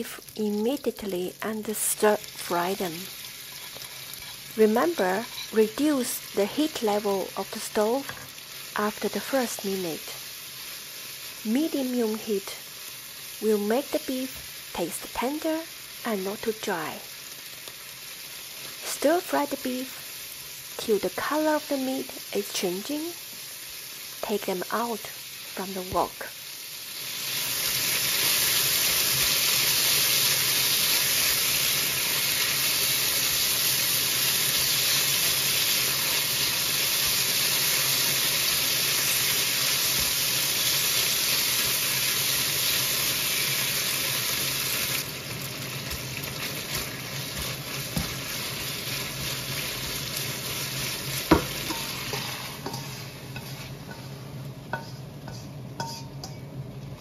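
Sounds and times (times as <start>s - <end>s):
meat sizzling in a wok: 0.0s - 57.0s
spatula knocking against pan: 51.3s - 51.8s.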